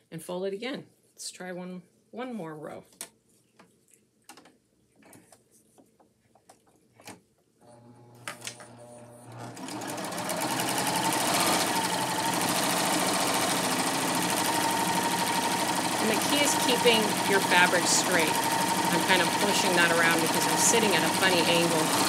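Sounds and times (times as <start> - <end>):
serger sewing machine running: 7.8 - 22.0.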